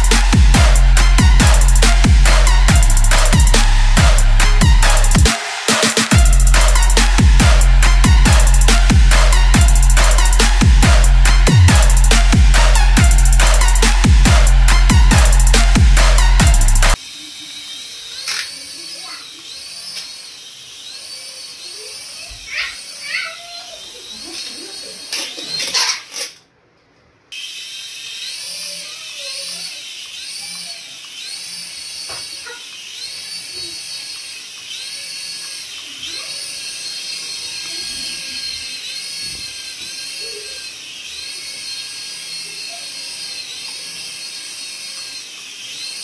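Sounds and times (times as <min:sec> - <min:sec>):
toy whining high-pitched: 0:16.2 - 0:26.3, 0:27.3 - 0:46.0.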